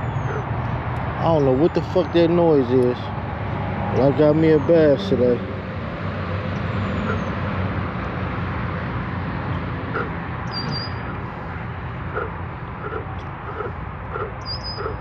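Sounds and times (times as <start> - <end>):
outdoor rumble and hiss: 0.0 - 15.0
faint animal calls: 7.0 - 7.4, 12.1 - 15.0.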